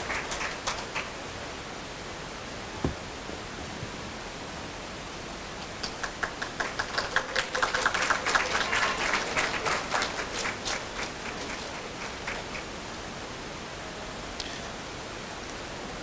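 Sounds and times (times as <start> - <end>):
audience clapping: 0.0 - 1.4, 5.6 - 12.8.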